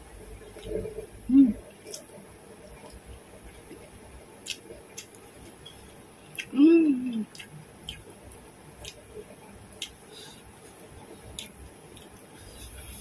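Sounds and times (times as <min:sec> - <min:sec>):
person humming: 0:01.3 - 0:01.6, 0:06.5 - 0:07.3
person chewing: 0:01.7 - 0:13.0.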